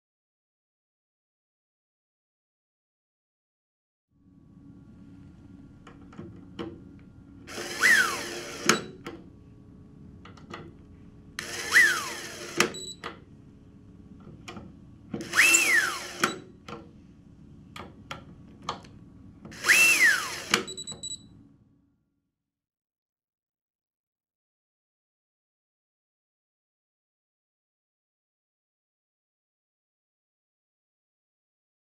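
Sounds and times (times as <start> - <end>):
electric screwdriver motor whine: 7.5 - 8.9, 11.4 - 12.9, 15.2 - 16.4, 19.5 - 20.8
screwdriver clutch click: 11.4 - 12.9, 15.2 - 16.4, 19.5 - 21.2.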